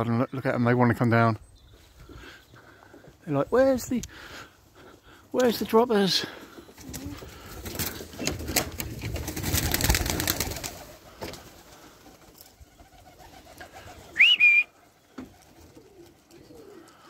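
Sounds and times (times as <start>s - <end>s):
pigeon wingbeats: 6.5s - 17.0s
short rising whistle: 14.2s - 14.7s.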